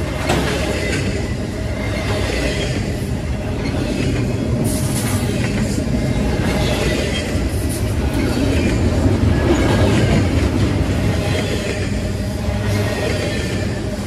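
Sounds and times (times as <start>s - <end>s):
freight train rumbling past: 0.0s - 14.0s.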